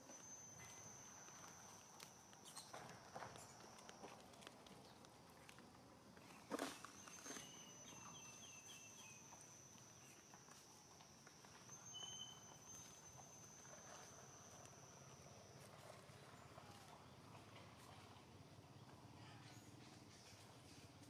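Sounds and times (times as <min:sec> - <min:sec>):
high insect whine: 0:00.0 - 0:04.3, 0:06.8 - 0:16.5.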